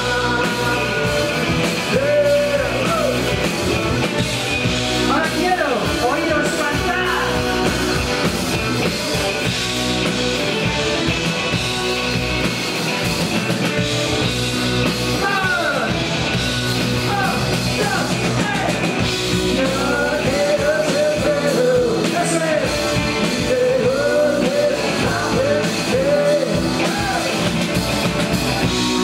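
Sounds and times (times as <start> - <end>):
live rock band playing: 0.0 - 29.0.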